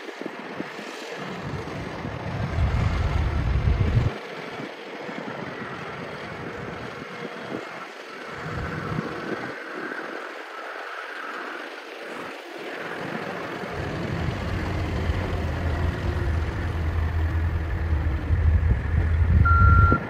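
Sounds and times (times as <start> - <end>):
wind buffeting microphone: 0.0 - 20.0
distant diesel truck engine: 12.9 - 20.0.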